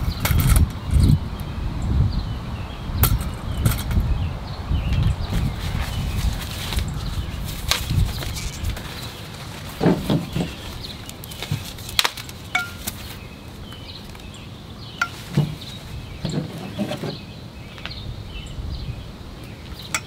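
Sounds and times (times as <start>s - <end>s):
metal poles knocking and clinking: 12.5s - 13.0s, 15.0s - 17.2s.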